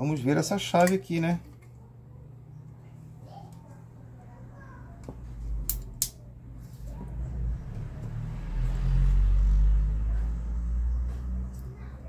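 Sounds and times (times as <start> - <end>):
sharp clicks: 5.7 - 6.2.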